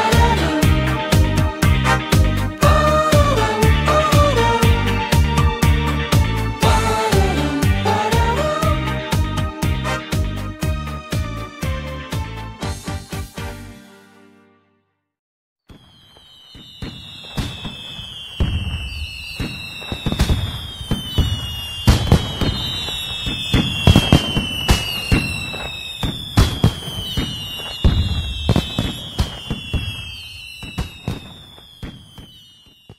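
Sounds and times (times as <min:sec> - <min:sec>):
whistling firework shells: 0:15.6 - 0:32.9
fireworks banging and crackling: 0:15.7 - 0:32.9.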